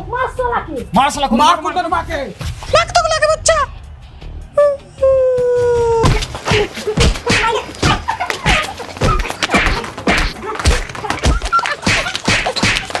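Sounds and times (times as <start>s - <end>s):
punch and slap thuds: 6.0s - 13.0s.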